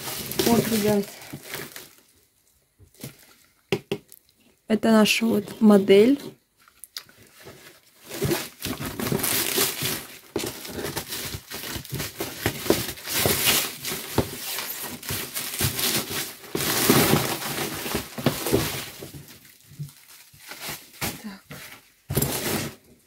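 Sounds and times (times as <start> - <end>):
plastic bag crinkling: 0.0 - 3.6, 5.0 - 22.8
scissors cutting plastic: 8.0 - 19.1.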